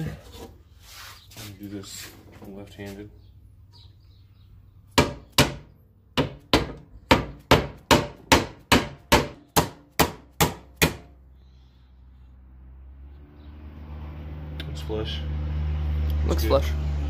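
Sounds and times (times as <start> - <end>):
hammer striking wooden block: 5.0 - 11.1.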